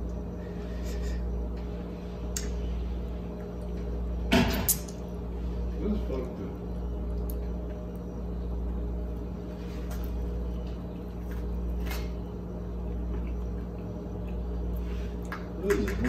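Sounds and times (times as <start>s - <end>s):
steady low hum: 0.0s - 16.0s
person chewing food: 9.8s - 15.6s.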